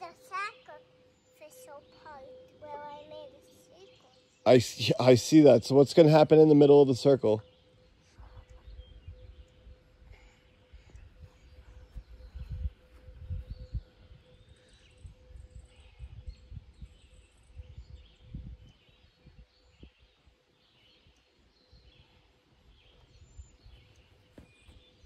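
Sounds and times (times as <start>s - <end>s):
faint bird chirps: 0.0s - 5.3s, 6.5s - 25.0s
low rumbling on microphone: 8.2s - 20.1s.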